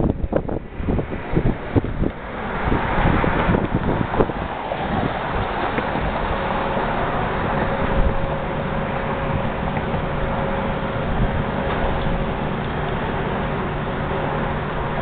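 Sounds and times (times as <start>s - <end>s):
faint steady whine: 0.0s - 15.0s
low engine rumble: 0.0s - 15.0s
wind buffeting microphone: 0.0s - 15.0s.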